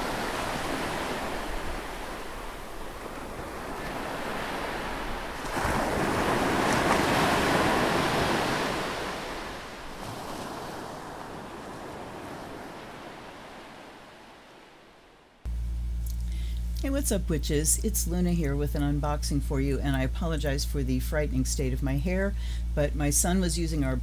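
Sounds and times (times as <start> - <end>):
ocean waves: 0.0 - 15.4.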